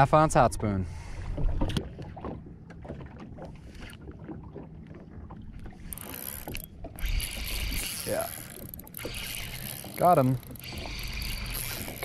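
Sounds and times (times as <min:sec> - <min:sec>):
choppy water against boat hull: 0:00.0 - 0:12.0
wind: 0:00.0 - 0:12.0
fishing reel clicks: 0:05.9 - 0:12.0.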